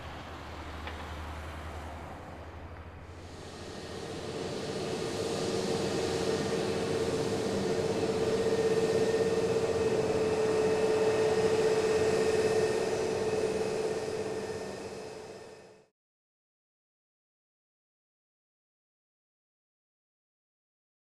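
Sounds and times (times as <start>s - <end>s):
jet engines running: 0.0s - 15.9s.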